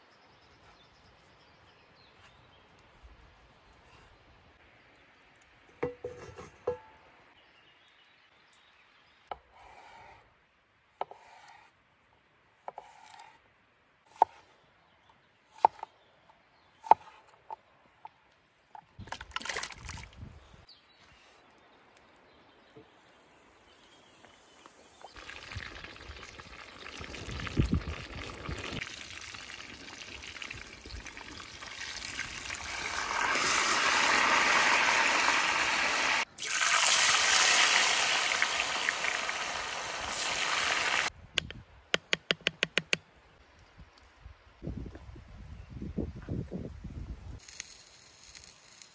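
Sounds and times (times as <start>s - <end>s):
food sizzling in hot oil: 25.0s - 41.1s.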